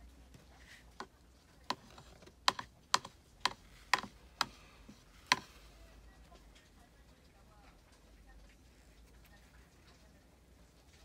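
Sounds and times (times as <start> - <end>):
painting tool tapping paper: 0.4 - 5.6.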